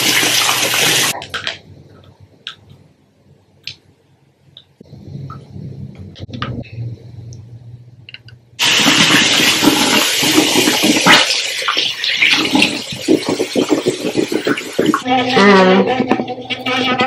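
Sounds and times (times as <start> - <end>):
faint low hum: 1.2 - 8.6.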